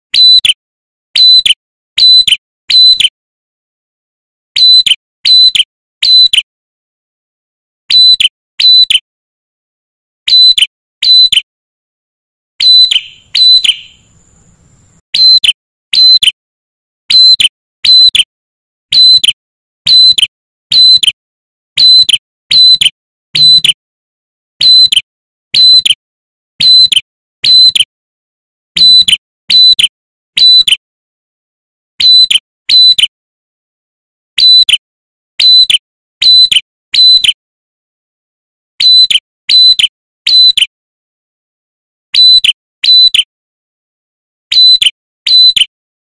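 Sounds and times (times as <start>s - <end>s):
bird calling sharp whistled notes: 0.1s - 0.6s, 1.2s - 3.1s, 4.6s - 6.4s, 7.9s - 9.0s, 10.3s - 11.5s, 12.6s - 16.4s, 17.1s - 18.3s, 18.9s - 21.1s, 21.8s - 23.8s, 24.6s - 25.0s, 25.6s - 25.9s, 26.6s - 27.8s, 28.8s - 29.8s, 32.0s - 33.0s, 34.4s - 34.8s, 35.4s - 37.4s, 38.8s - 40.7s, 44.6s - 45.7s.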